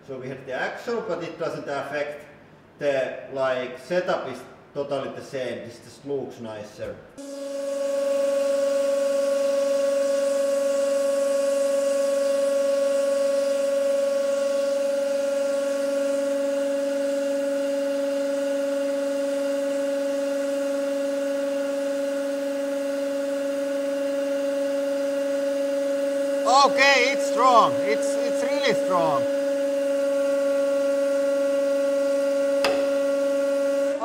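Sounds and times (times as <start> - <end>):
hydraulic press humming: 24.2 - 34.0.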